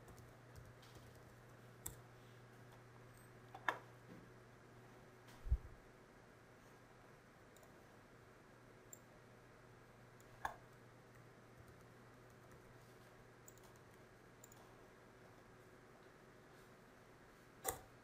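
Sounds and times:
keyboard and mouse clicks: 0.0 - 2.0, 13.4 - 14.7, 17.6 - 17.9.

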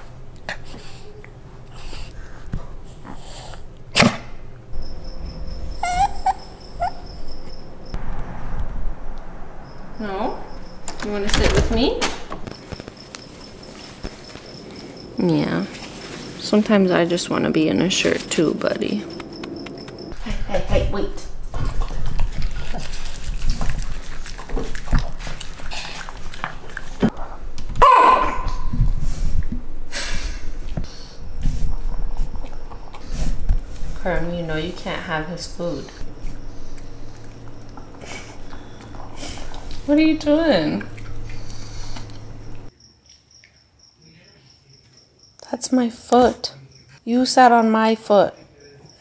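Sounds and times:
low rumble: 4.5 - 12.5, 28.6 - 42.7
small dog whining: 5.5 - 7.7
dog chewing wetly: 21.4 - 27.2, 35.6 - 42.7
dog licking and lip-smacking: 21.5 - 27.1, 35.8 - 42.7.

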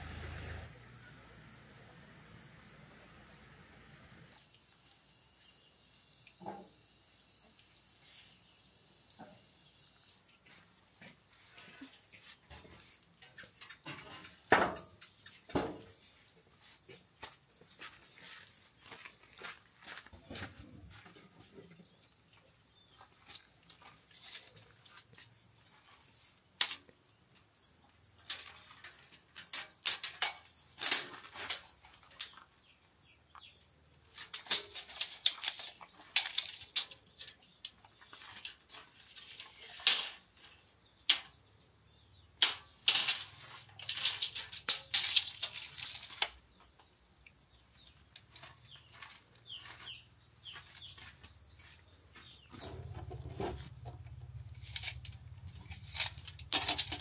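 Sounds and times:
steel tape measure clicking and whirring: 42.4 - 46.4, 54.5 - 57.0.

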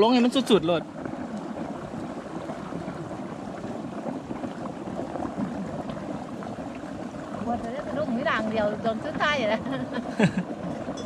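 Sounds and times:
water gurgling and splashing: 0.0 - 11.0.

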